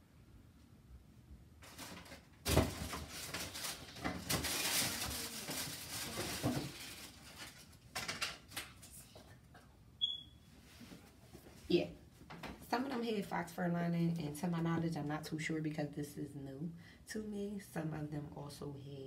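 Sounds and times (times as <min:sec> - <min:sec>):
rustling of handled objects: 0:01.6 - 0:09.4.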